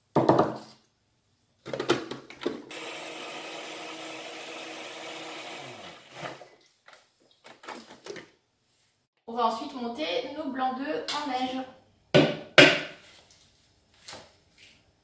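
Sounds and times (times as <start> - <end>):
blender motor running: 2.7 - 6.5.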